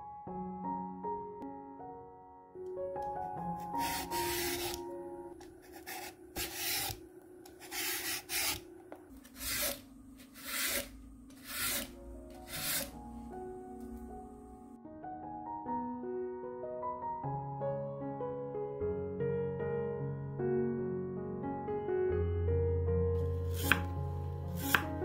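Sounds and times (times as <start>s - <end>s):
soft piano music: 0.0s - 6.0s, 9.8s - 25.0s
peeler scraping lotus root: 3.6s - 4.8s, 5.4s - 13.0s, 23.5s - 23.9s, 24.6s - 25.0s.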